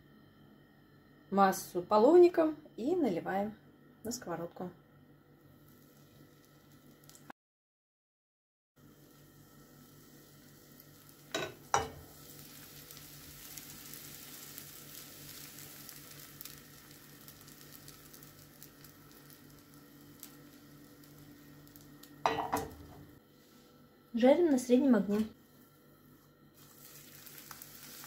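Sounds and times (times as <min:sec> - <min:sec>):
pancake batter sizzling: 0:05.6 - 0:07.3, 0:08.8 - 0:23.2, 0:25.4 - 0:28.0.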